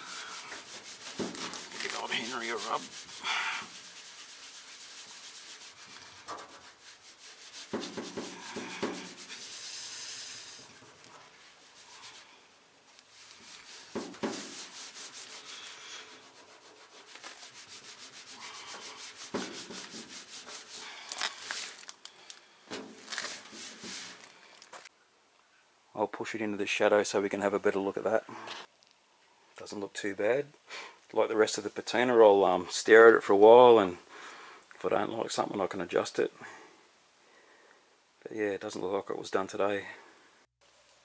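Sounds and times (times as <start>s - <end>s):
rag scrubbing painted panel: 0.0s - 12.4s, 13.0s - 21.8s, 22.8s - 24.2s.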